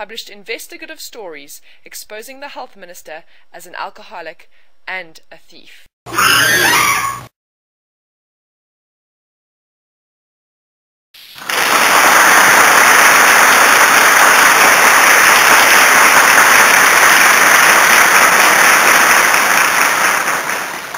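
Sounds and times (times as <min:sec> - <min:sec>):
loud applause: 0:11.4 - 0:20.9.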